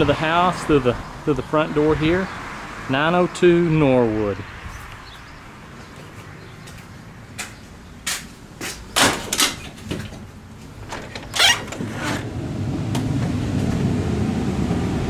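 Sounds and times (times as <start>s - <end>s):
door latch clicks and rattles: 9.0s - 10.2s, 10.8s - 11.9s
door scraping: 9.0s - 12.3s.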